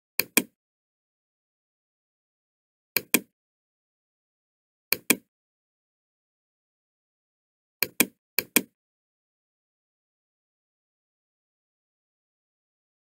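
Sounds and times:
computer mouse clicks: 0.2 - 0.6, 3.0 - 3.3, 4.9 - 5.3, 7.8 - 8.8.

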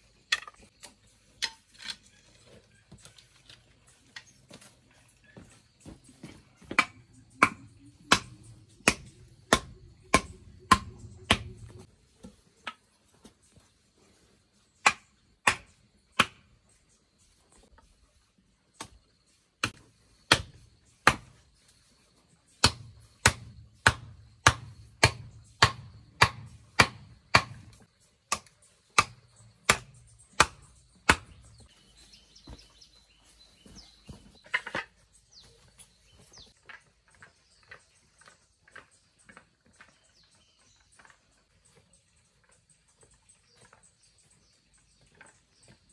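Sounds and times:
hand tool chopping wood: 6.2 - 12.8, 14.8 - 16.5, 19.6 - 21.4, 22.5 - 31.7.

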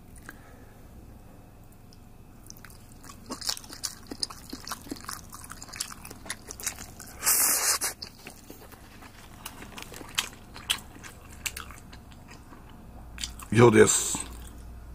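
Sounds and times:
person chewing food: 2.4 - 13.5, 14.1 - 14.7
crunchy bite: 2.5 - 12.6.

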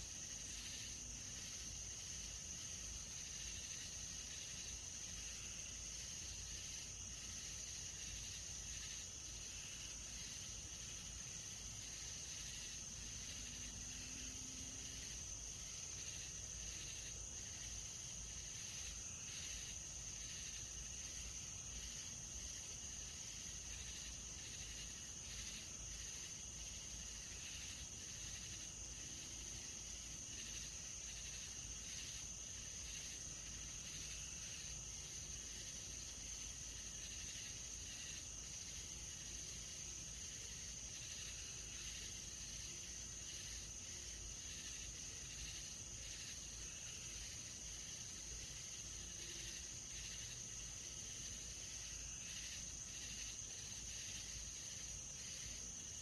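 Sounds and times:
faint pulsing insect call: 0.0 - 56.0
high-pitched insect trill: 0.0 - 56.0.

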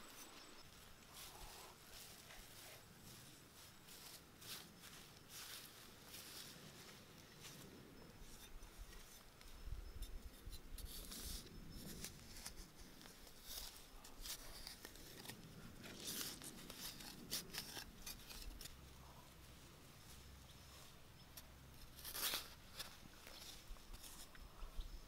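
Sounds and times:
rustling dirt and grass stems: 0.0 - 24.5
soil being scraped and dug: 8.2 - 19.0, 20.6 - 24.4.

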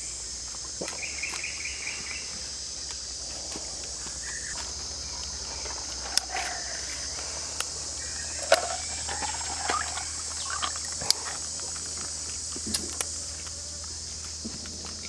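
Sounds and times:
high-pitched insect chorus: 0.0 - 15.0
herbs clicking and rustling: 7.2 - 15.0.

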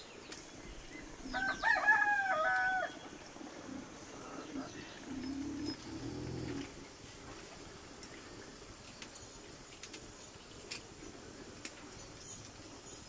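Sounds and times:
animal low call: 3.6 - 6.8.

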